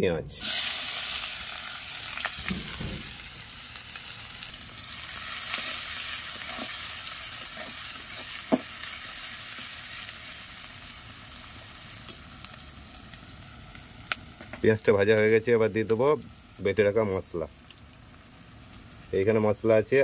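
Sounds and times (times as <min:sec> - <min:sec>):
onions sizzling in oil: 0:00.4 - 0:19.6
metal spatula scraping a pan: 0:05.5 - 0:08.6.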